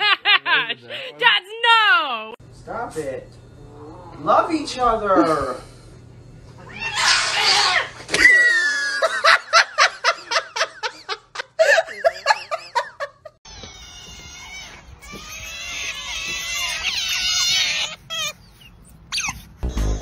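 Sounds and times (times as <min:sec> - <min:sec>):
person laughing hard: 0:08.3 - 0:13.3
high squeaky chirps: 0:13.5 - 0:20.0.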